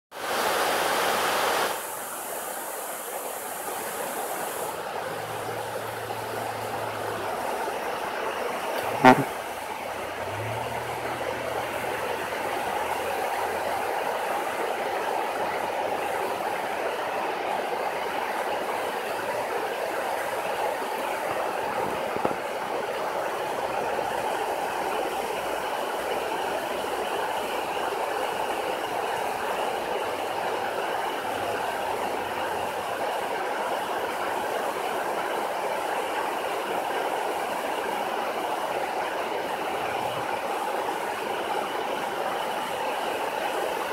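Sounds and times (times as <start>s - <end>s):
water rushing over spillway: 0.1s - 43.9s.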